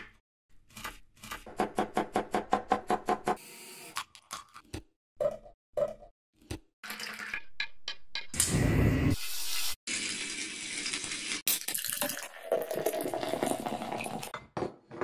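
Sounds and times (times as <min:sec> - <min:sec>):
beer pouring into a glass: 0:11.6 - 0:14.3.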